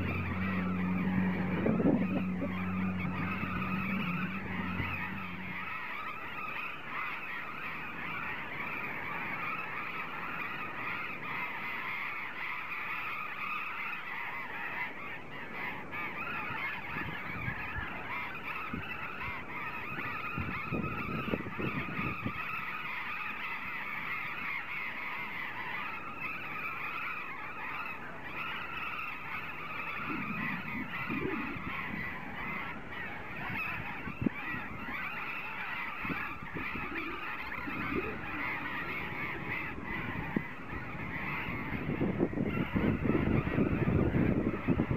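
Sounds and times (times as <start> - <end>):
parrots calling harshly: 0.0 - 7.1.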